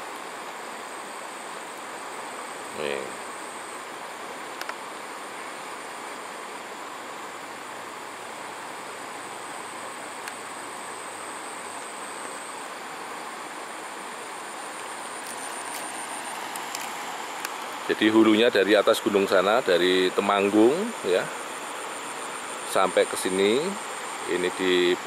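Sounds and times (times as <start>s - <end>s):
river water flowing over rocks: 0.0s - 25.0s
thin high steady tone: 0.0s - 25.0s.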